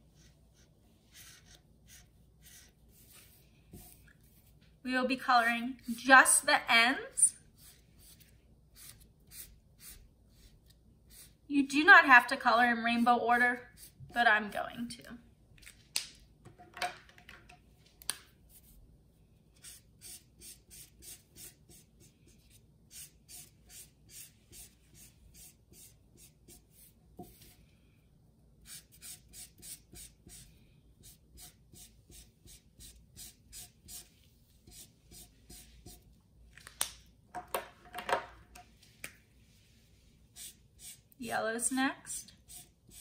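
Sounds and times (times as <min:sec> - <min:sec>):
marker scribbling on paper towel: 0:00.1 - 0:04.5, 0:19.6 - 0:27.5, 0:28.6 - 0:36.1.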